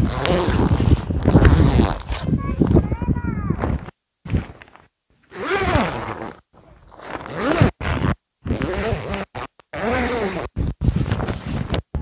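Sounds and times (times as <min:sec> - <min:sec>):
zipper being pulled: 0:00.0 - 0:02.3, 0:05.3 - 0:11.9.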